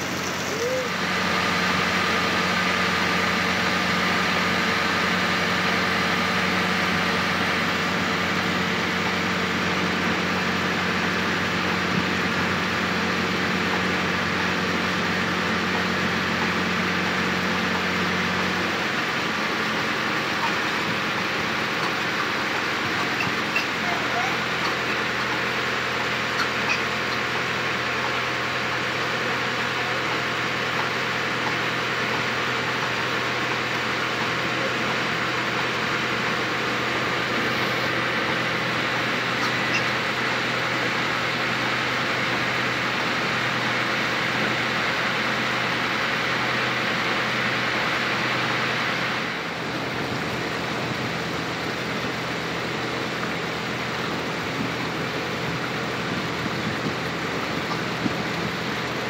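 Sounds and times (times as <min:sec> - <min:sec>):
water and wind hiss: 0:00.0 - 0:03.2, 0:35.0 - 0:59.0
boat engine humming: 0:00.0 - 0:59.0.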